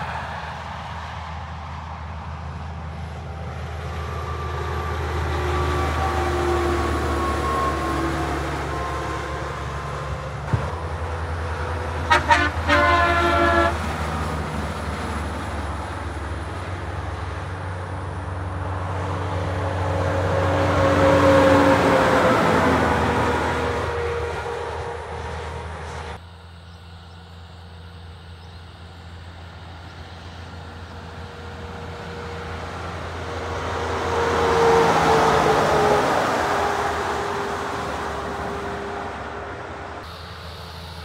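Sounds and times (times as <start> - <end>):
trucks passing on motorway: 0.0 - 41.0
truck air horn blasts: 12.0 - 13.9, 20.5 - 26.0.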